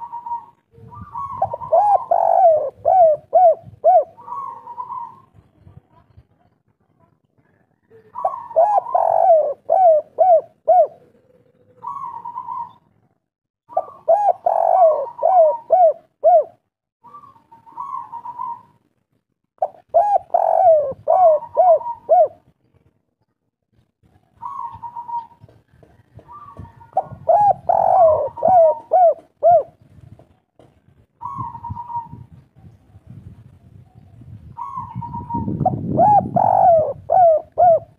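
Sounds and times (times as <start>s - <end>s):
dove cooing: 0.0s - 5.4s, 7.8s - 12.9s, 13.7s - 18.8s, 19.6s - 22.5s, 24.3s - 29.8s, 31.2s - 32.8s, 34.2s - 37.9s.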